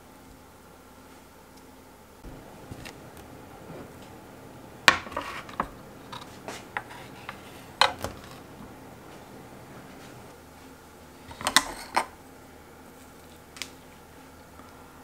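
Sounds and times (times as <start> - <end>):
ceramic bowl knocking on tray: 4.9 - 8.4
spoon laid on tray: 4.9 - 10.2.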